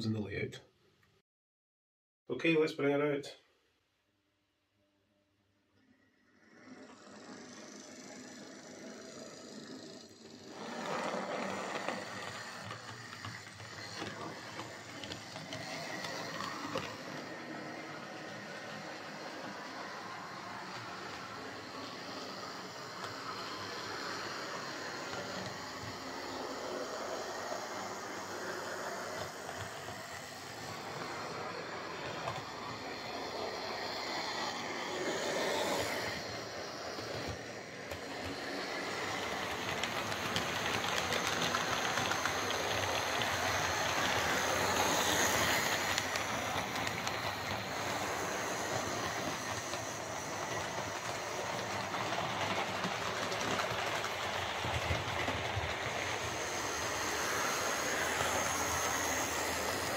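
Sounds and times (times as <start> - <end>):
model trains running on track: 5.8 - 59.9.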